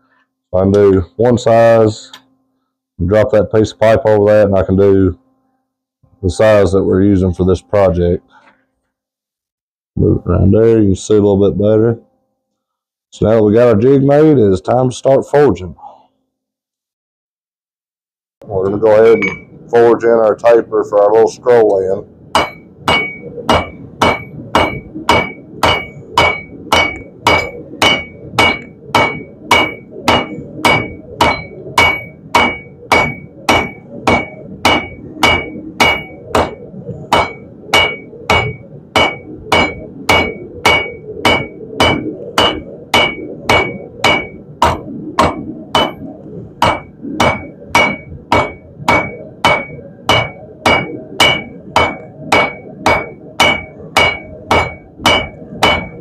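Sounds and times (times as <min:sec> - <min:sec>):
hammer striking steel on anvil: 0:18.6 - 0:19.5, 0:22.4 - 0:56.0.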